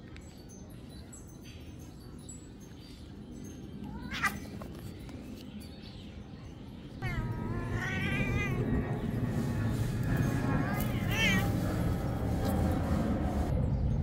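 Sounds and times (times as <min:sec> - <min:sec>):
cat meowing: 0:07.0 - 0:09.0, 0:10.7 - 0:11.6.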